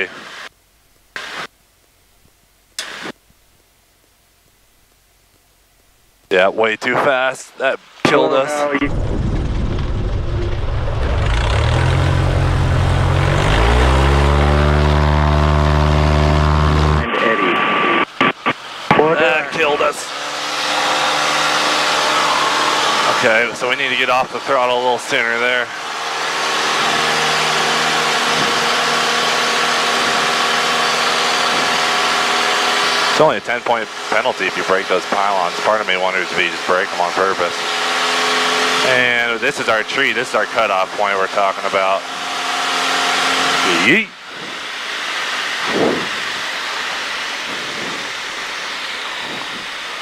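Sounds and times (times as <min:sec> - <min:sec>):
light airplane engine and propeller: 0:10.0 - 0:50.0
wind rushing past cockpit: 0:28.0 - 0:29.0, 0:31.4 - 0:32.2, 0:43.7 - 0:44.8, 0:45.5 - 0:49.9.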